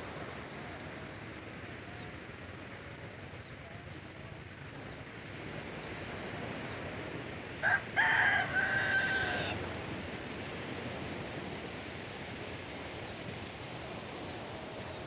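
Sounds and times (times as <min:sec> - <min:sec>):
surf: 0:00.0 - 0:15.0
wind: 0:00.0 - 0:15.0
rooster crowing: 0:07.6 - 0:09.7.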